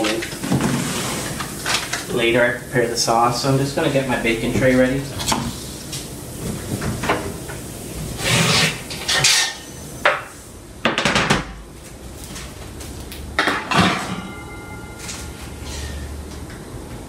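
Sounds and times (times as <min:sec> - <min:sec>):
metal baking tray clattering: 0:13.4 - 0:16.0.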